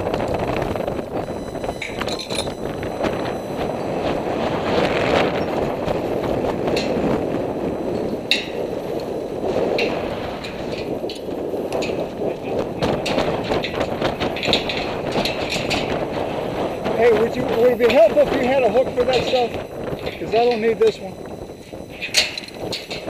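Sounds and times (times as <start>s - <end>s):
wind rushing on microphone: 0.0s - 23.0s
metal climbing hardware clicking: 1.8s - 2.7s, 22.0s - 23.0s.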